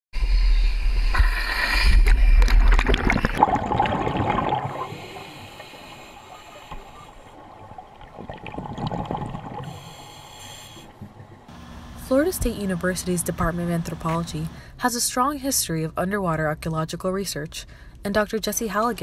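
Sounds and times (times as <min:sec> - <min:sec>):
underwater bubbling: 0:01.2 - 0:11.5
water splashing and sloshing: 0:01.2 - 0:11.5.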